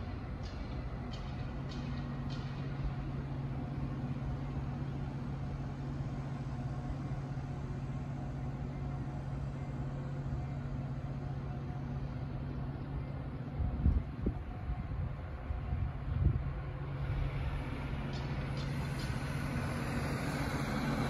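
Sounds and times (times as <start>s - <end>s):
engine idling: 16.9s - 21.0s.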